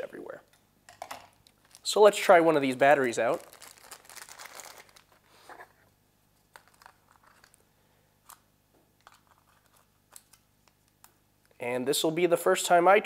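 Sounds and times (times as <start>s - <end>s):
plastic wrapping crinkling: 1.4s - 5.8s, 6.4s - 11.1s.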